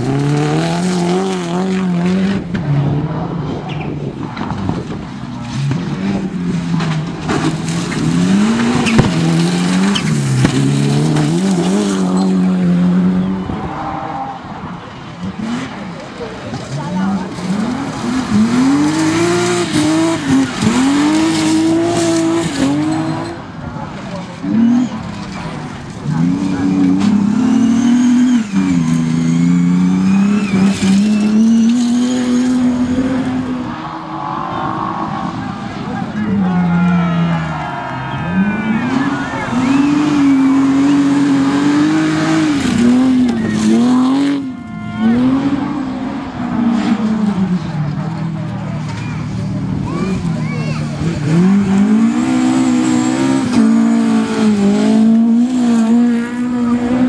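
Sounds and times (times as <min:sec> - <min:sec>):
car sliding on loose dirt: 0:00.0 - 0:57.0
rally car engine revving: 0:00.0 - 0:57.0
car sliding on gravel: 0:04.5 - 0:12.5, 0:15.9 - 0:32.2.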